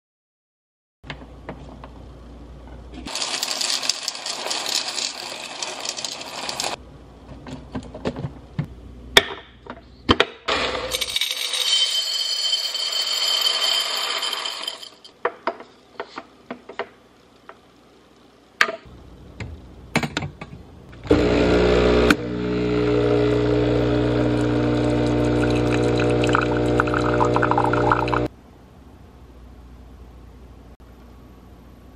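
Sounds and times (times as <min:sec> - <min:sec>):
coffee beans rattling: 0:03.1 - 0:06.8, 0:10.9 - 0:15.1
espresso machine pump humming: 0:21.1 - 0:28.3.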